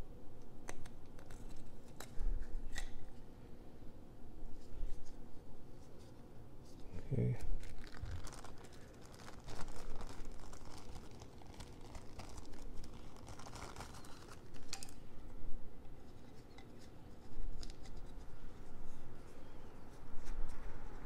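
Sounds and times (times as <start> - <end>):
plastic bag crinkling: 7.4 - 15.0.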